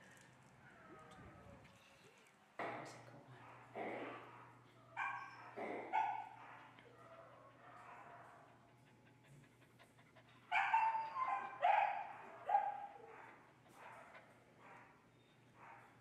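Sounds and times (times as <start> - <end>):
dog barking high-pitched: 5.0 - 6.6, 10.5 - 13.3
dog panting: 5.2 - 15.1.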